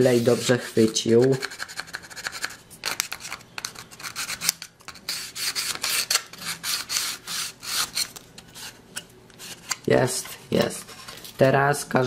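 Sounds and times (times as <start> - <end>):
sandpaper rubbing on plastic: 0.0 - 2.6, 4.0 - 8.8.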